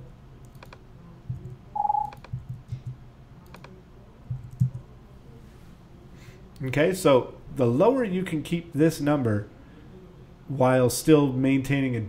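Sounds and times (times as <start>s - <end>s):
keyboard keys clicking: 4.3s - 4.8s.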